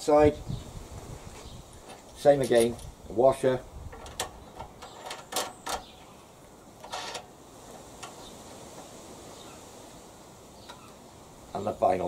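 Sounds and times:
metal scrape: 6.8s - 8.3s.

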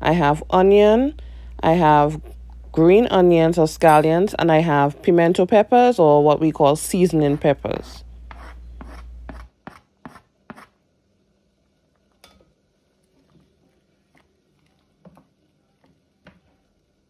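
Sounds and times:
low hum: 0.0s - 9.4s
wooden spoon scraping cutting board: 7.2s - 10.7s
spoon stirring in pot: 12.0s - 16.7s.

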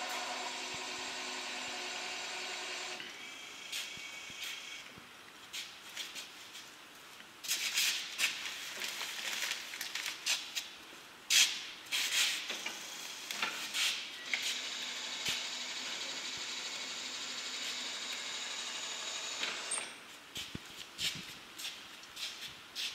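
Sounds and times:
steady hiss: 19.6s - 22.9s.

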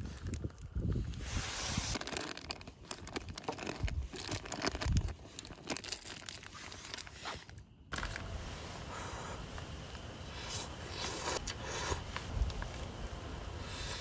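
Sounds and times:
plastic packaging crinkling: 1.8s - 8.3s
background hiss: 6.4s - 14.0s.

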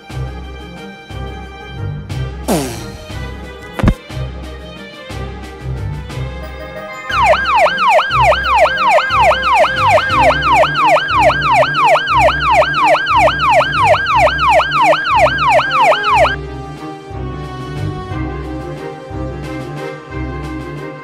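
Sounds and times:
siren yelping: 7.1s - 16.4s.

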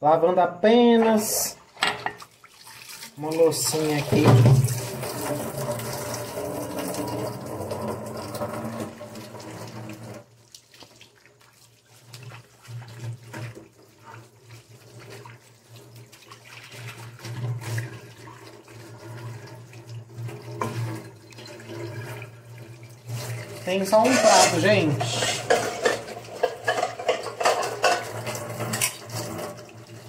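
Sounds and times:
water splashing on dishes: 1.1s - 30.0s
tap running into sink: 4.0s - 10.2s.

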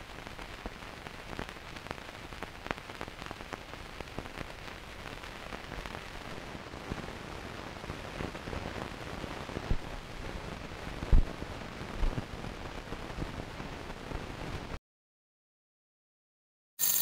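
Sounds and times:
low pops and crackles: 0.0s - 14.8s.

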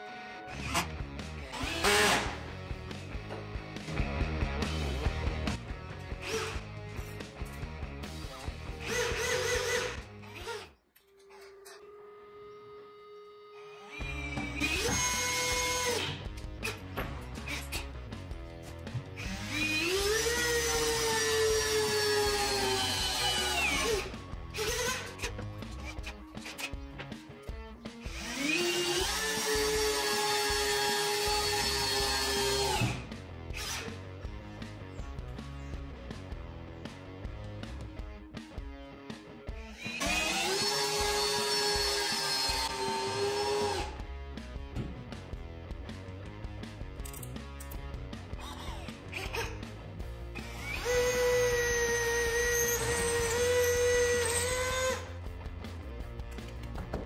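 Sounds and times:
cordless drill boring into wall: 1.5s - 2.5s, 8.8s - 10.7s, 13.7s - 16.8s, 19.2s - 25.3s, 28.1s - 33.9s, 39.8s - 44.0s, 50.4s - 55.2s
cordless drill motor whine: 8.8s - 16.1s, 39.7s - 44.0s, 50.4s - 55.2s.

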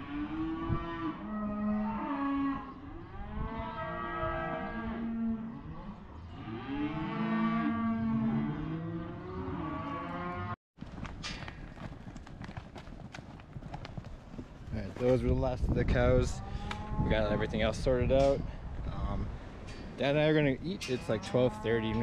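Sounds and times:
cattle mooing and bawling: 0.0s - 10.6s, 16.3s - 17.7s, 21.1s - 22.0s
hooves clattering on dirt: 10.8s - 18.9s.

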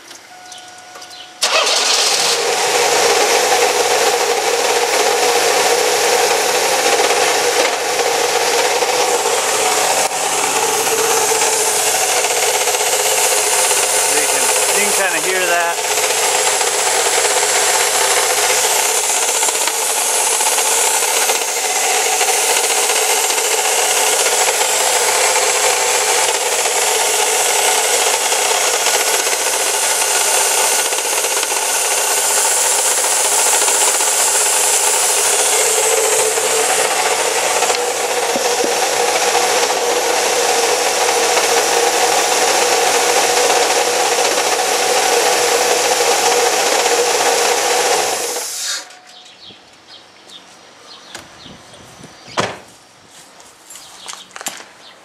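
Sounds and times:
alternator bearing grinding: 1.0s - 49.0s
car engine running: 1.1s - 48.4s.

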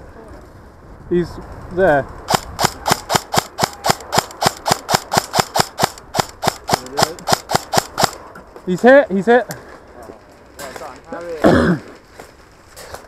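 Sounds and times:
airsoft gun firing snaps: 2.3s - 8.2s.

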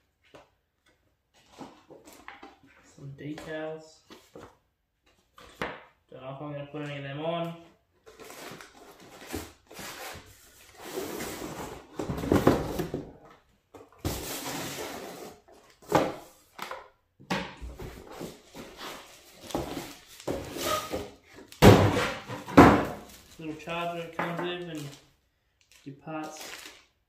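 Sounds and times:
cardboard rustling: 17.7s - 24.0s.

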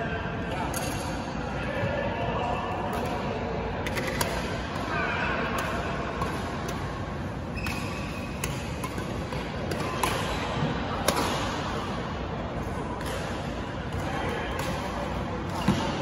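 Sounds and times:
sports hall background noise: 0.0s - 16.0s
badminton rackets hitting shuttlecock: 3.8s - 4.8s, 5.6s - 12.0s, 12.6s - 16.0s.

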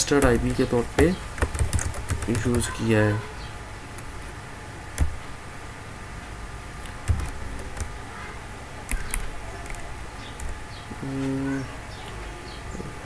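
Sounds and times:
computer keyboard keystrokes: 0.0s - 2.6s, 5.0s - 5.2s, 6.8s - 7.9s, 8.9s - 10.6s
low background hum: 0.0s - 13.0s.

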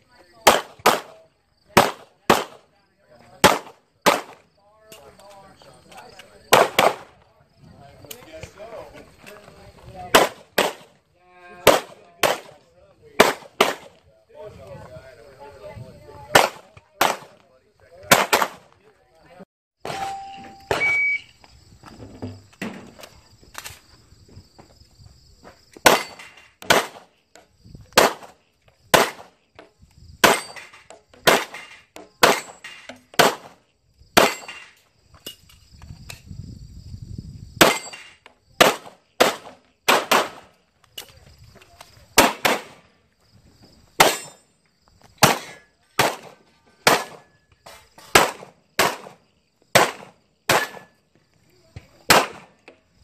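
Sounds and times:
handgun shots with echo: 42.2s - 42.8s, 49.8s - 50.9s, 52.1s - 52.6s.

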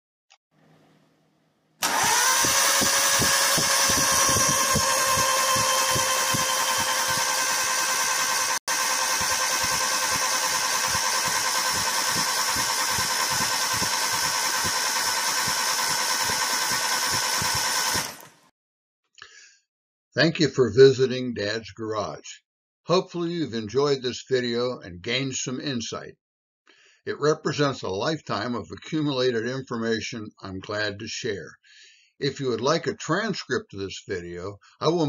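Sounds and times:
motor whine: 1.8s - 18.5s.

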